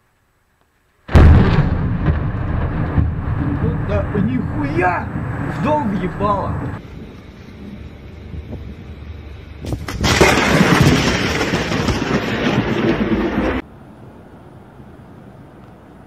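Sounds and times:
crashing thunderclap: 1.1s - 5.5s, 9.7s - 13.6s
lightning crack: 1.1s - 6.8s, 9.6s - 13.6s.

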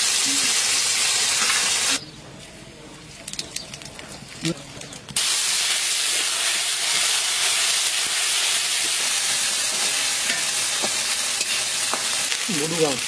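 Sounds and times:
oil sizzling in a wok: 0.0s - 2.0s, 5.2s - 13.0s.

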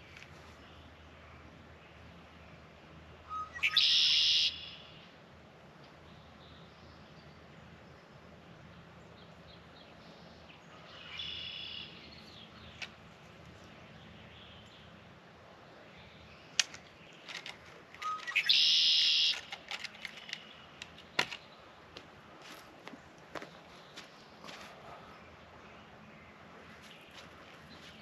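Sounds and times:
bird calling: 3.2s - 5.1s, 10.8s - 13.0s, 16.5s - 21.7s
sharp clicks and knocks: 16.6s - 18.4s, 19.3s - 21.4s.

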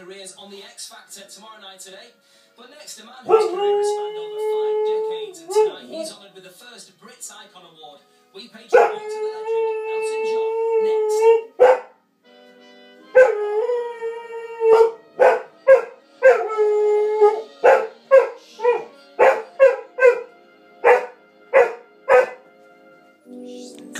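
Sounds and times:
faint tv music: 0.0s - 23.9s
dog howling: 3.3s - 6.2s, 8.8s - 11.9s, 13.1s - 22.4s.

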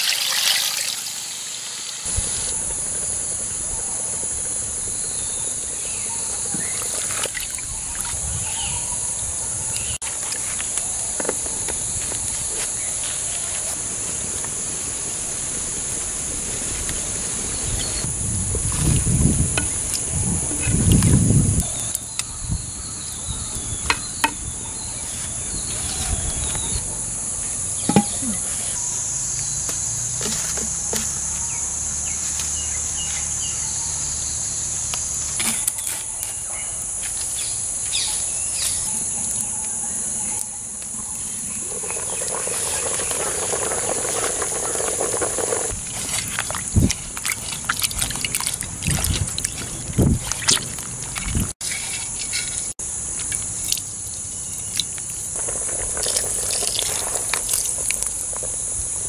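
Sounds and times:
insects chorus: 0.0s - 59.0s
water sloshing in basin: 6.6s - 8.4s, 41.5s - 53.8s
spoon and lid on clay pot: 27.8s - 28.2s.

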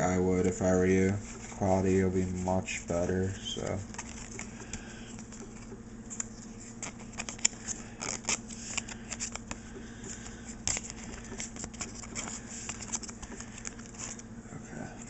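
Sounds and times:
cards being flipped by hand: 3.6s - 14.3s.

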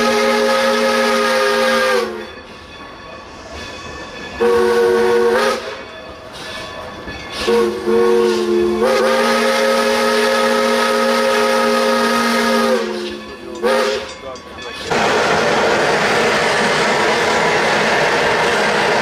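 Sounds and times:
steam locomotive whistle: 0.0s - 2.4s, 4.4s - 5.9s, 7.4s - 14.1s
train running noise: 0.0s - 19.0s.

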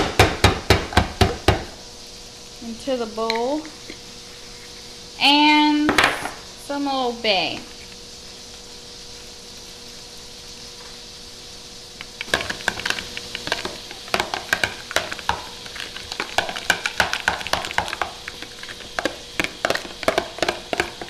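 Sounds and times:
whisk beating sauce in bowl: 12.2s - 21.0s.

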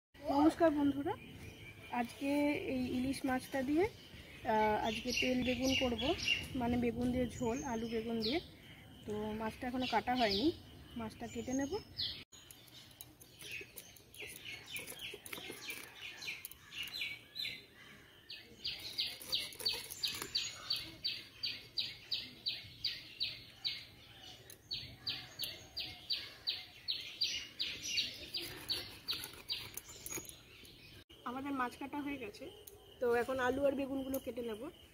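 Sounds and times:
knife scraping fish scales: 13.0s - 16.7s, 18.7s - 21.0s, 28.1s - 30.4s.

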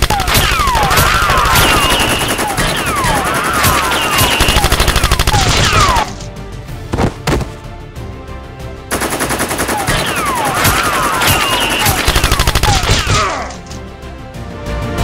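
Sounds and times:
rapid automatic gunfire: 0.0s - 6.0s, 8.9s - 13.2s
falling whistling zaps: 10.1s - 12.3s.

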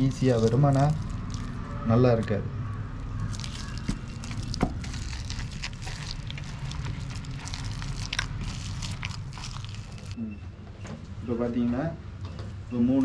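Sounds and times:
hands squelching wet pulp: 0.0s - 1.8s, 3.0s - 10.2s.

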